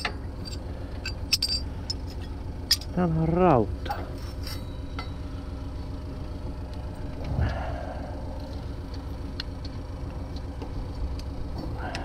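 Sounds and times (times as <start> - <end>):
low mechanical hum: 0.0 - 12.0.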